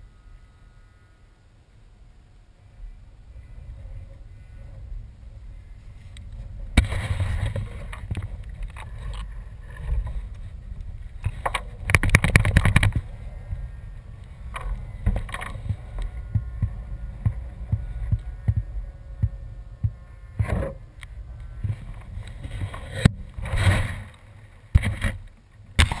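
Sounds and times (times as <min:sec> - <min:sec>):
low wind rumble: 0:00.0 - 0:26.0
knocks and bumps: 0:14.5 - 0:20.8.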